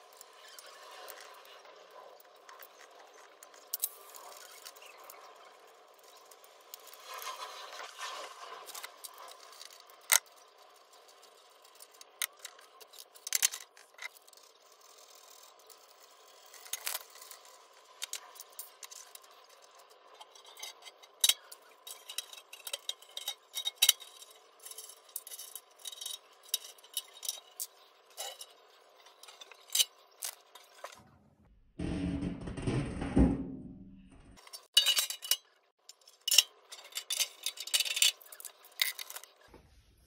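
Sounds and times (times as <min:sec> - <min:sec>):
metal cabinet frame clicks and knocks: 0:31.8 - 0:34.4.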